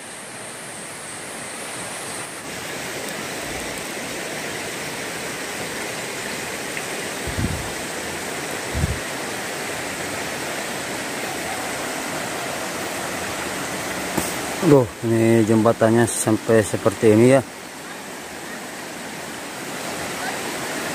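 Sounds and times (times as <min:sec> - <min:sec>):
river rushing over rocks: 0:00.0 - 0:20.9
low thumps: 0:07.3 - 0:07.7.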